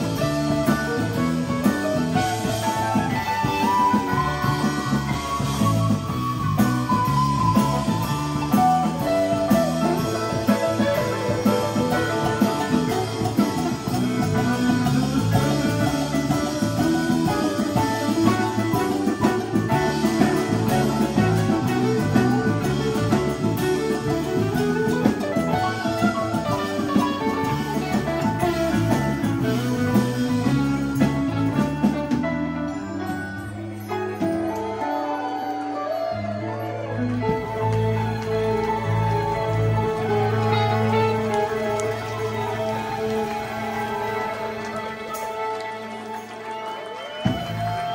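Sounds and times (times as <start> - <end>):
electric bass: 0.0 - 34.8, 36.0 - 46.3
congas: 0.0 - 47.9
drum kit: 0.0 - 47.9
electric guitar lead: 0.0 - 47.9
keyboard: 0.0 - 47.9.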